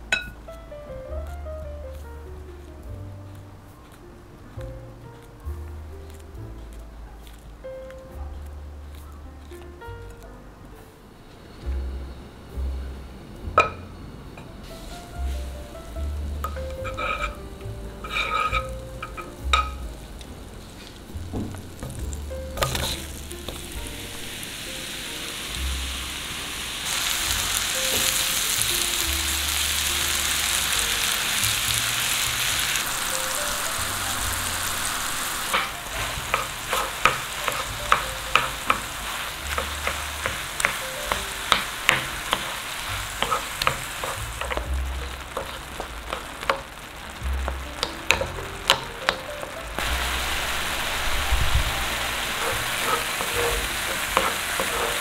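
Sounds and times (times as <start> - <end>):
banana sizzling in butter: 14.6 - 55.0
wooden spoon knocking on pan: 16.4 - 17.3, 18.0 - 19.9, 21.2 - 23.6, 35.5 - 49.3, 52.4 - 55.0.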